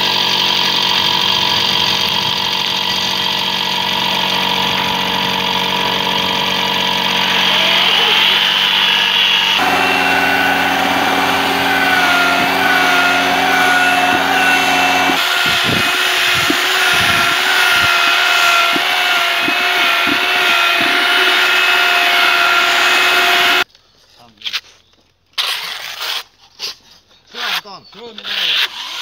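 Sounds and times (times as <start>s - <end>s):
electric drill mixing: 0.1s - 23.6s
low hum: 4.7s - 23.6s.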